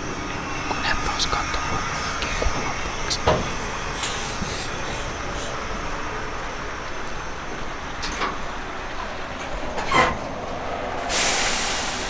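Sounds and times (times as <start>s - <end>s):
electric truck rolling past: 3.4s - 12.0s.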